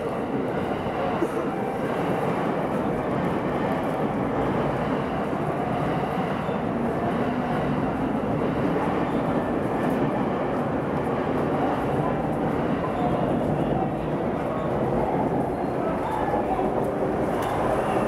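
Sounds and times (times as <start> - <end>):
train wheels rumbling on rail: 0.0 - 18.0.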